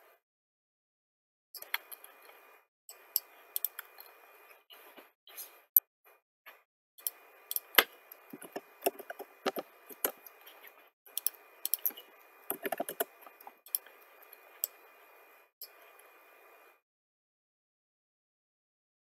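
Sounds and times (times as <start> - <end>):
keyboard and mouse clicking: 2.9 - 4.1, 7.0 - 10.4, 11.1 - 13.9.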